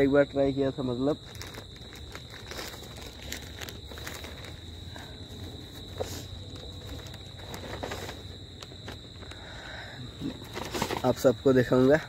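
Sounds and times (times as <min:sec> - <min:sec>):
plastic package rustling: 0:01.0 - 0:09.3.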